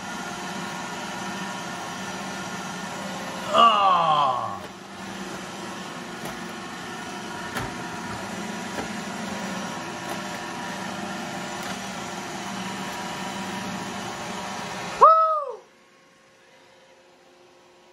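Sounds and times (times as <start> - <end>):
robot vacuum whirring: 4.2 - 15.0.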